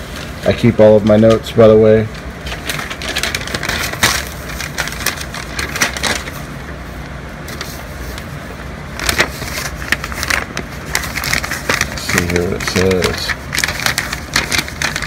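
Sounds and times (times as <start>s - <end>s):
envelope paper tearing and rustling: 2.4s - 6.5s, 9.0s - 15.0s.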